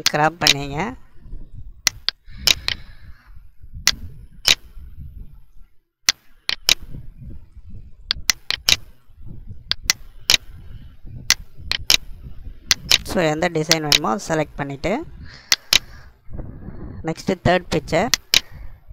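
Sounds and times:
computer mouse clicking: 0:01.9 - 0:02.9, 0:06.1 - 0:06.9, 0:08.1 - 0:08.9, 0:11.3 - 0:12.1, 0:12.7 - 0:13.1, 0:13.7 - 0:14.0, 0:15.5 - 0:16.0, 0:18.1 - 0:18.5
faint low rumble: 0:08.9 - 0:18.9.

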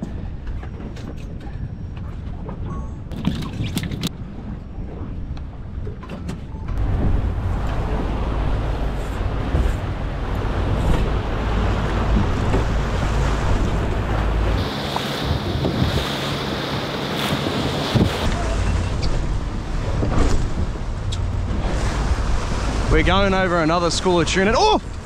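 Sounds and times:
wind buffeting microphone: 0:00.0 - 0:24.0
heavy low rumble: 0:06.5 - 0:25.0
churning boat wake rushing: 0:06.7 - 0:25.0.

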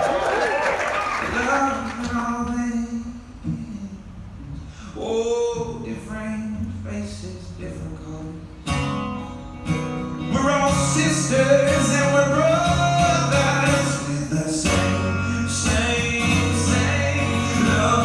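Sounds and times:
man singing: 0:01.3 - 0:08.6, 0:10.2 - 0:18.0
acoustic guitars strumming: 0:01.4 - 0:18.0.

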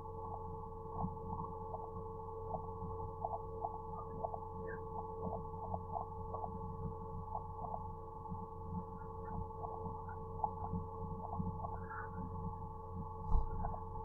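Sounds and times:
electrical hum with held tones: 0:00.0 - 0:14.0
soft irregular blips: 0:00.0 - 0:14.0.

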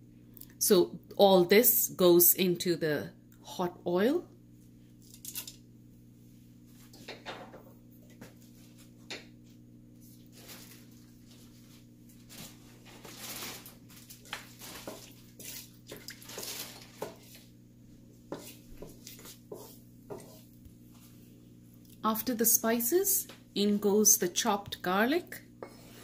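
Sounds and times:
spatula stirring in pan: 0:14.3 - 0:17.5, 0:18.3 - 0:20.6.

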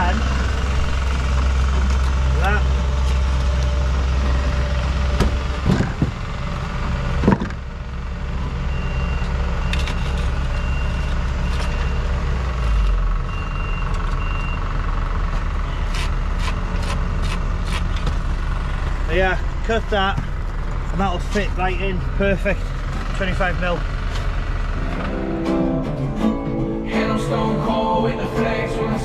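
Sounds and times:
vehicle engine humming: 0:00.0 - 0:29.0
reversing alarm beeping: 0:08.4 - 0:14.7.

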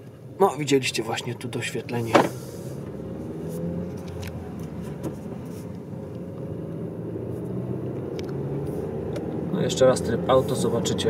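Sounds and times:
low car engine hum: 0:00.0 - 0:11.0
tyre and road noise: 0:00.0 - 0:11.0.

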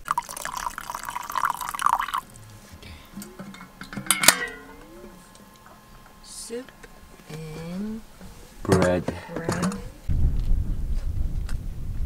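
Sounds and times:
water poured into metal mug: 0:00.0 - 0:02.4.

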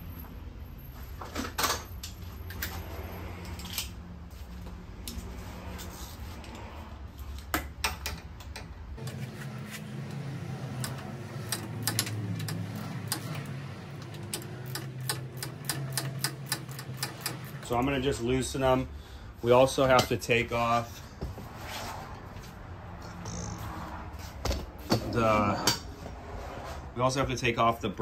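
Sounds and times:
hand ratchet clicking: 0:14.0 - 0:17.6.

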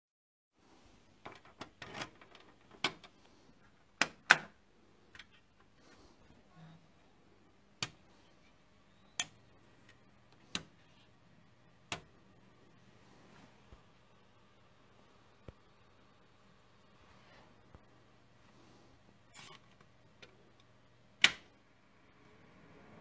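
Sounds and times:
computer humming: 0:04.7 - 0:23.0
switches clicking: 0:20.6 - 0:21.5.

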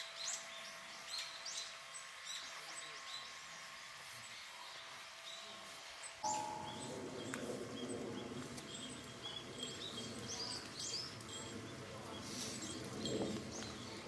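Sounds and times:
distant murmur of voices: 0:02.4 - 0:14.0
bird chirps: 0:04.3 - 0:11.5.

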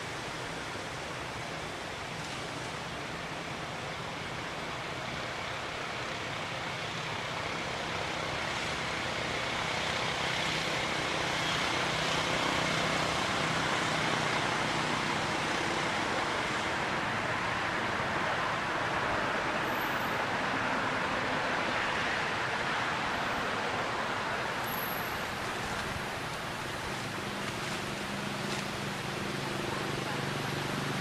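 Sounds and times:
steady rushing noise: 0:00.0 - 0:31.0.

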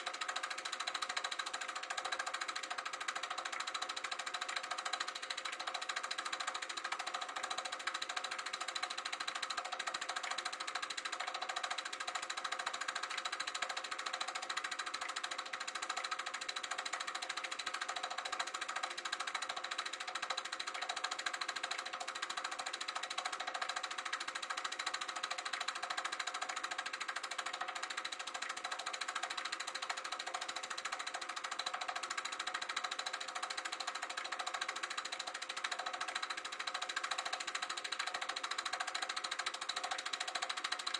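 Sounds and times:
film projector clattering: 0:00.0 - 0:40.9
motor and fan whir: 0:00.0 - 0:40.9.

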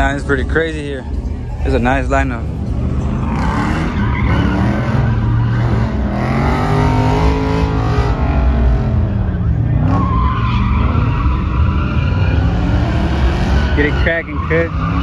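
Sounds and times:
car engine revving hard: 0:03.2 - 0:10.0.

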